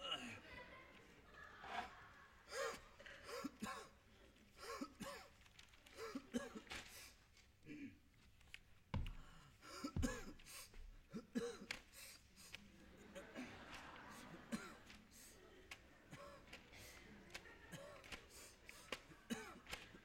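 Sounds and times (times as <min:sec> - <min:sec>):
people grunting and coughing: 0:00.0 - 0:00.5, 0:06.0 - 0:06.8, 0:09.0 - 0:10.4, 0:11.1 - 0:11.9, 0:13.0 - 0:15.4, 0:16.1 - 0:20.0
heavy thumps: 0:09.0 - 0:09.4, 0:10.0 - 0:11.0.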